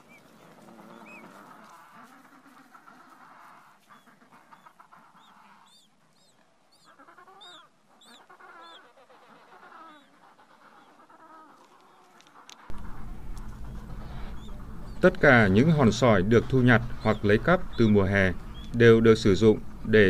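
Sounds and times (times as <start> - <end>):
low buzzy calling: 0.0 - 20.0
penguin chicks peeping: 0.0 - 20.0
loud low hum: 12.7 - 20.0.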